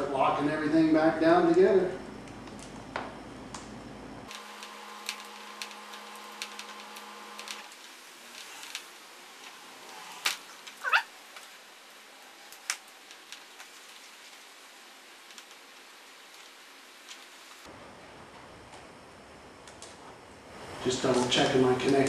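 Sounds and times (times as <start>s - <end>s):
faint steady hum: 0.0s - 22.0s
wiring clicks and rustles: 2.2s - 17.7s.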